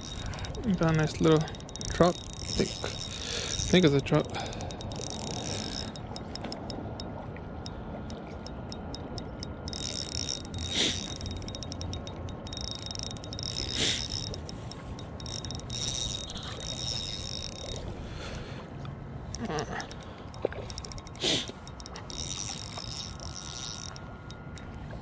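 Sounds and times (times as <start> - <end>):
fishing reel gears clicking: 0.0 - 18.4, 19.3 - 24.8.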